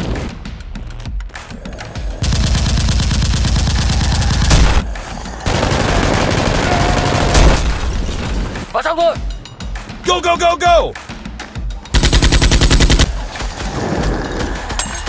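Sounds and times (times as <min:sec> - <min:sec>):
automatic gunfire: 0:05.5 - 0:07.7, 0:12.0 - 0:13.2.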